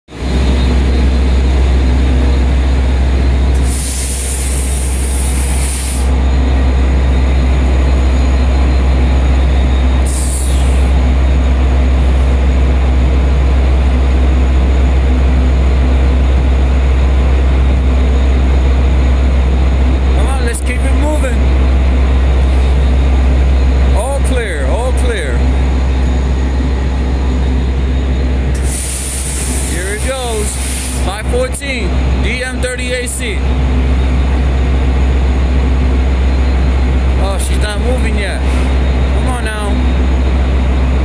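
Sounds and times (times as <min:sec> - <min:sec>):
diesel locomotive rumbling: 0:00.1 - 0:41.0
air brake hissing: 0:03.5 - 0:06.2, 0:10.0 - 0:11.0, 0:28.5 - 0:31.1, 0:38.4 - 0:38.8.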